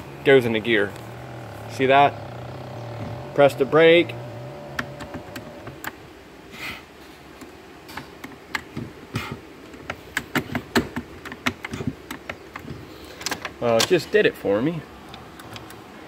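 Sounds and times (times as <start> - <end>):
light clicks and knocks of controls: 0.0 - 6.0, 7.3 - 16.0.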